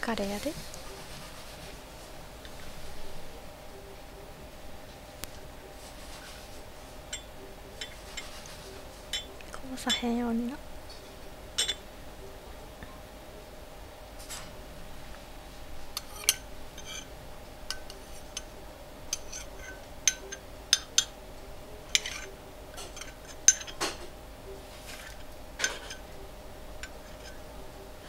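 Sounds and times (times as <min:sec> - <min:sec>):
metal spoon clinking on dish: 0:07.1 - 0:08.4, 0:09.1 - 0:10.1, 0:11.6 - 0:11.8, 0:16.0 - 0:17.1, 0:17.7 - 0:18.5, 0:19.1 - 0:21.2, 0:21.9 - 0:24.1, 0:24.9 - 0:26.1, 0:26.8 - 0:27.4.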